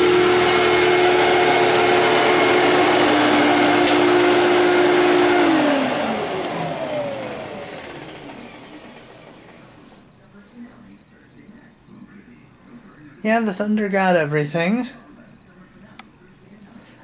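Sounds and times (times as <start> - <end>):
vacuum cleaner motor whine: 0.0 - 10.0.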